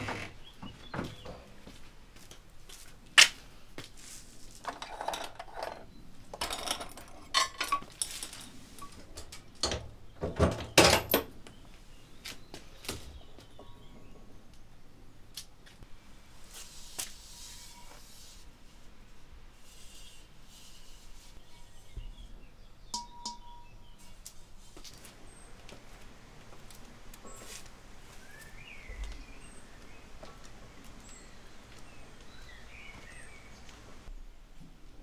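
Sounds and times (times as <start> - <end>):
kiln door rattling and knocking: 0.0 - 1.6, 9.6 - 11.3
ceramic pots clinking: 22.9 - 23.8.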